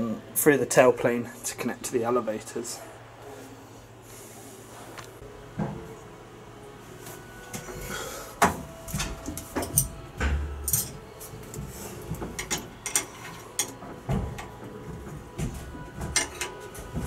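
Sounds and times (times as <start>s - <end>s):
hand tools clinking on metal: 10.6s - 11.0s, 12.4s - 13.8s, 16.1s - 16.6s.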